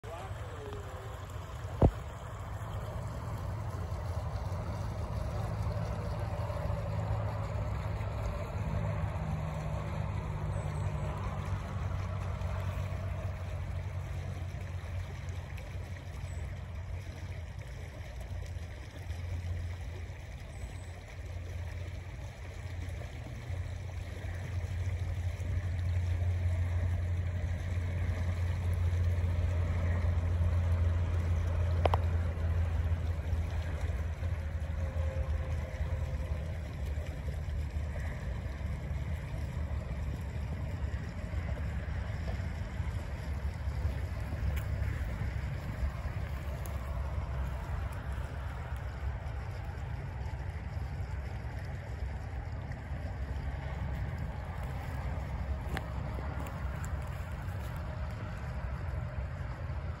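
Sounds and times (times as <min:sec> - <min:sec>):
river water running: 0:00.0 - 1:00.0
low rumble: 0:20.9 - 1:00.0.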